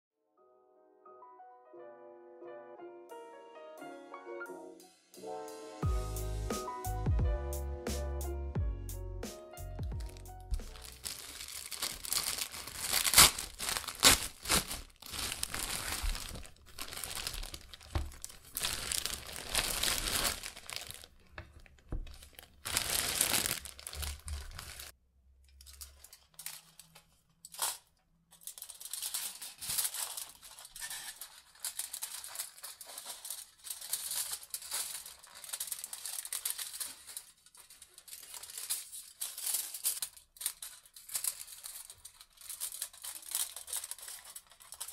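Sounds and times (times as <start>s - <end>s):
plastic bag crinkling: 10.0s - 25.0s, 25.6s - 44.9s
aluminium foil crinkling: 10.0s - 44.9s
scissors cutting foil: 10.5s - 21.0s, 25.7s - 44.9s.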